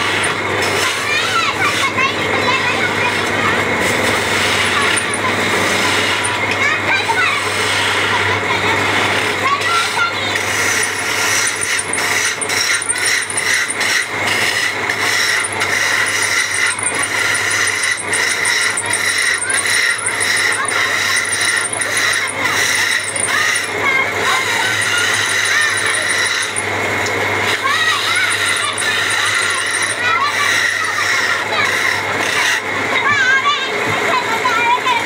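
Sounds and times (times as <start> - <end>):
lathe motor hum: 3.0 - 6.6, 10.4 - 32.6
chisel scraping spinning wood: 3.2 - 8.1, 10.4 - 26.8, 27.4 - 32.6.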